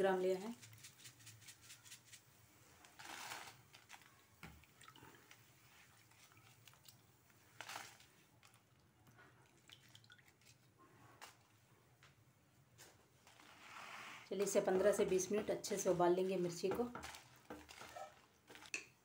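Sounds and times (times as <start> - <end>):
wet rustling of chillies in water: 0.0 - 11.7, 12.7 - 19.0.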